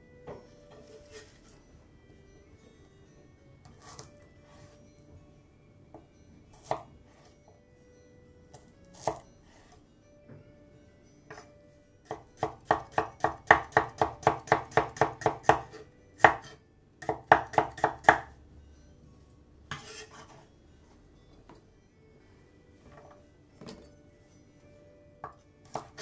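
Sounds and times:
knife scraping cutting board: 0.8s - 1.6s, 3.7s - 4.8s, 19.7s - 20.5s
knife chopping on cutting board: 12.1s - 18.3s.

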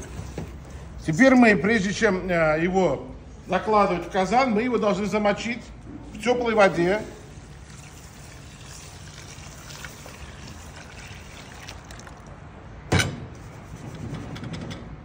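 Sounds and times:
water pouring onto rice: 7.0s - 12.4s.

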